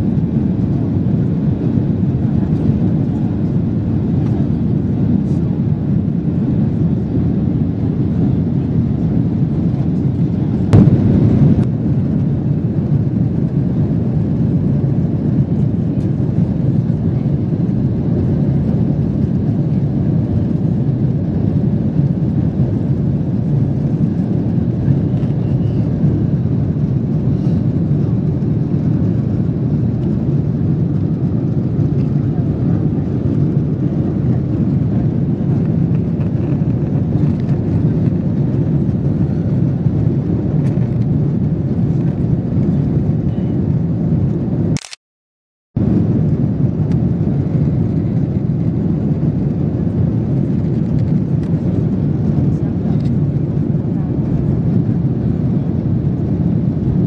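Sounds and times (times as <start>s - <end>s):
aircraft engines rumbling: 0.0s - 44.8s, 45.8s - 57.0s.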